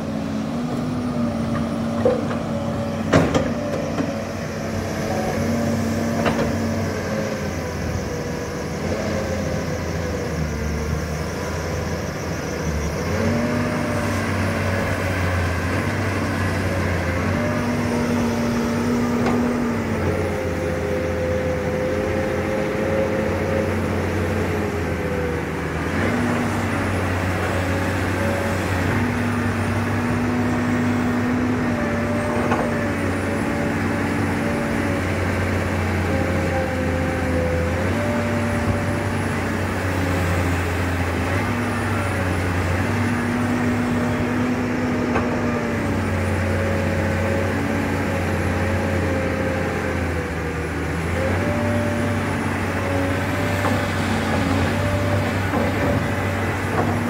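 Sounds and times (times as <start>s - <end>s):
excavator diesel engine under load: 0.0s - 57.0s.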